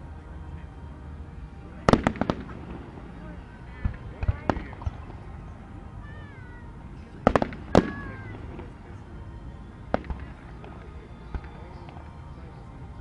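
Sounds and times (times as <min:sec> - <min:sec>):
fireworks bangs: 0:01.8 - 0:03.2, 0:03.8 - 0:05.3, 0:07.2 - 0:08.8, 0:09.9 - 0:11.6.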